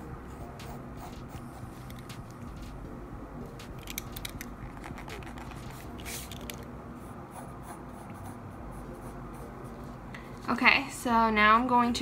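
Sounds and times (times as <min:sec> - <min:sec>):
pencil scratching on paper: 0:00.3 - 0:02.7, 0:04.7 - 0:06.3, 0:07.0 - 0:10.0.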